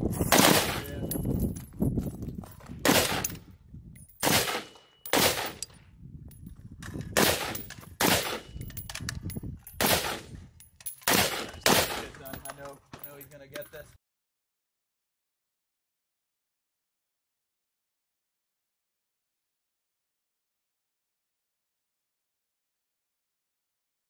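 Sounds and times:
rifle gunshots with echo: 0.3s - 1.2s, 2.8s - 3.4s, 4.2s - 5.6s, 7.2s - 8.7s, 9.8s - 10.3s, 11.0s - 12.4s.

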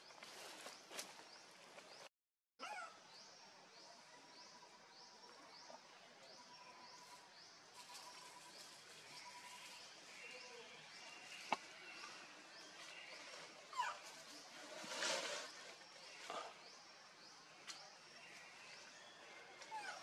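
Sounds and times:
rustling: 12.8s - 16.3s.

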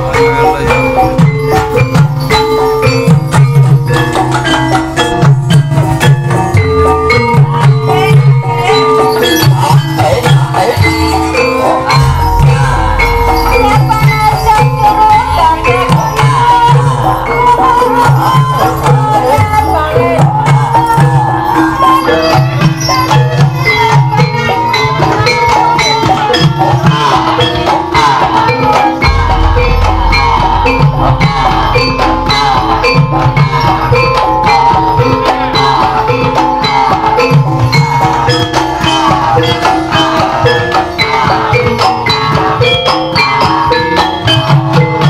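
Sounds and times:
drumming: 0.0s - 45.0s
metallophones ringing melody: 0.0s - 45.0s
low rumble: 29.0s - 32.9s.

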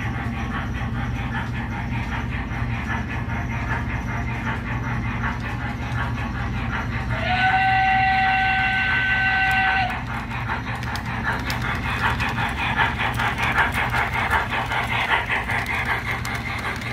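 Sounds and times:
low hum of rolling locomotive: 0.0s - 16.9s
model locomotive steam chuffing: 0.0s - 16.9s
steam whistle chord: 7.2s - 9.9s.

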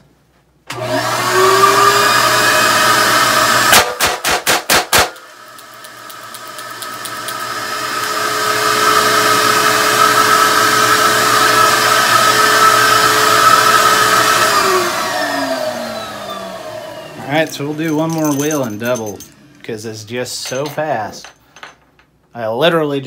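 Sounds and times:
extraction blower running: 0.7s - 3.8s, 5.2s - 17.8s.

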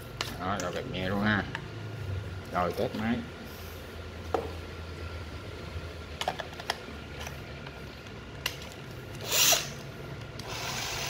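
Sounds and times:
drill motor whirring: 9.1s - 9.8s, 10.4s - 11.0s.

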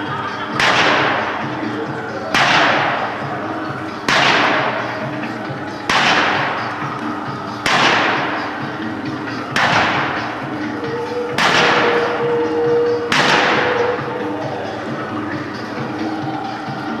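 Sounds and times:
loud metallic crash: 4.1s - 4.9s, 5.9s - 6.7s, 7.6s - 8.6s, 11.4s - 12.1s.

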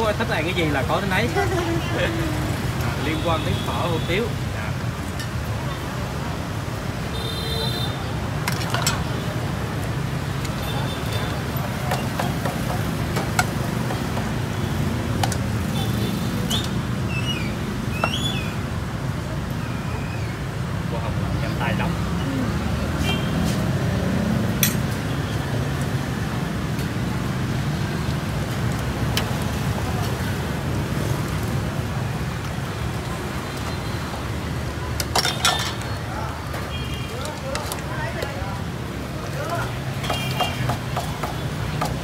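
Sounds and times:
street traffic rumble: 0.0s - 42.0s
broth being ladled: 8.3s - 9.9s.

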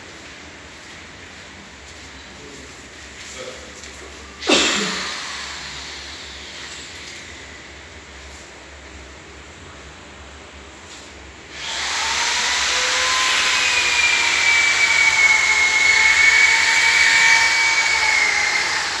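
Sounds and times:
machine hissing with motor whine: 4.4s - 8.4s, 11.5s - 19.0s.

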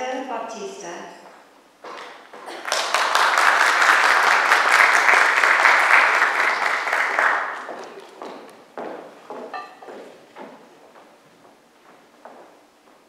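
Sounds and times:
footsteps on stage: 1.2s - 2.7s, 7.1s - 13.0s
dense clapping: 1.9s - 8.6s.

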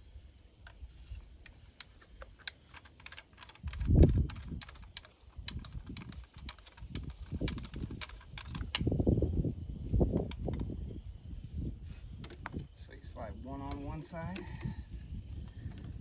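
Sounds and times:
sharp clicks on plastic pipe: 1.4s - 9.0s.

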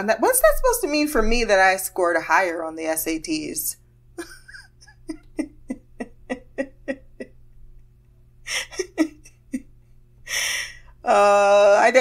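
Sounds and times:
woman laughing quietly: 4.2s - 10.8s
breath: 10.3s - 11.0s.

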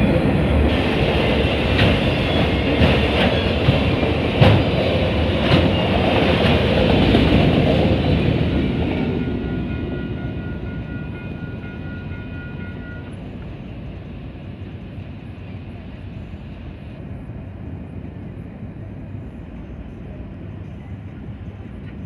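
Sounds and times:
train rumbling: 0.0s - 22.0s
crossing warning bell ringing: 8.5s - 13.4s.

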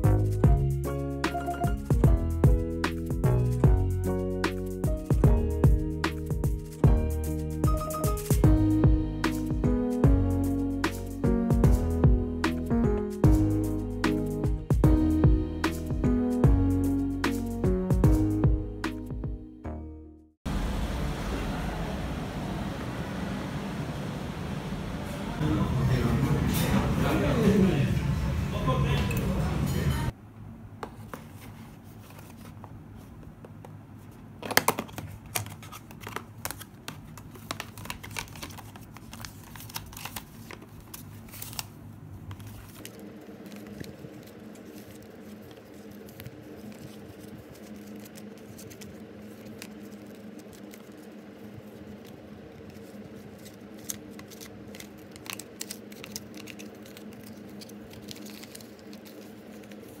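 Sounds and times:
low steady hum: 20.5s - 60.0s
paper rustling: 30.9s - 33.2s, 34.4s - 60.0s.

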